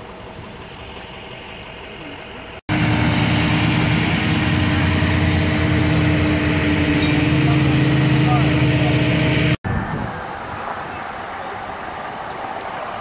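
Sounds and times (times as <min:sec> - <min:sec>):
faint street background: 0:00.0 - 0:13.0
truck engine running: 0:02.4 - 0:09.6.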